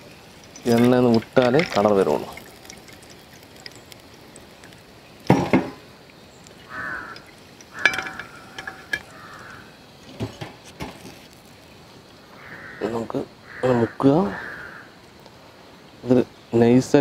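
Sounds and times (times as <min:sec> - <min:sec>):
metal ladle clinking on pot: 0:06.7 - 0:09.4.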